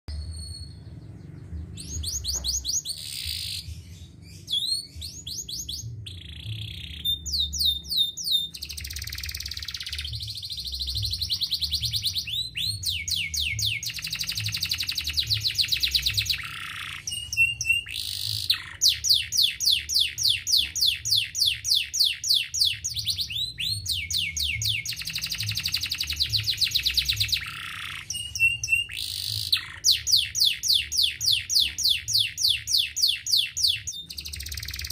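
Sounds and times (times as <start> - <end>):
canary singing trills: 0.1 - 34.9.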